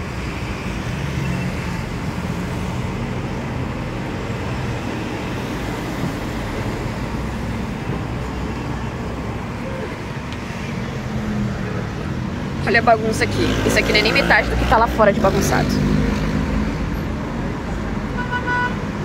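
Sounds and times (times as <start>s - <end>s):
road traffic rumble: 0.0s - 19.0s.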